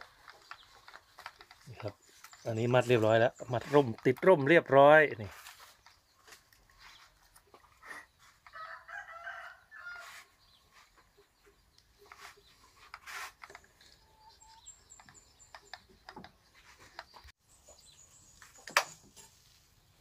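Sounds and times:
rooster crowing: 0:08.5 - 0:10.2.

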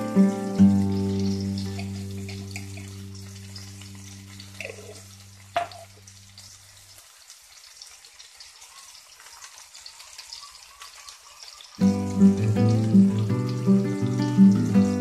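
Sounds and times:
background music: 0:00.0 - 0:05.9, 0:11.8 - 0:15.0
fish sizzling in a pan: 0:00.0 - 0:15.0.

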